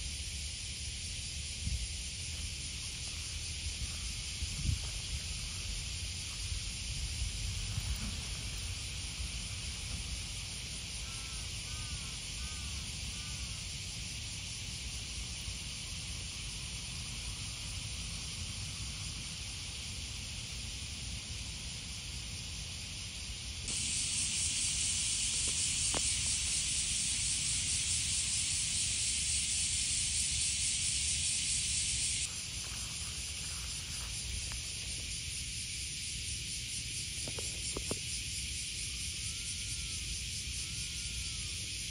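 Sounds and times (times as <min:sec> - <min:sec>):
high-pitched outdoor hiss: 0:00.0 - 0:41.9.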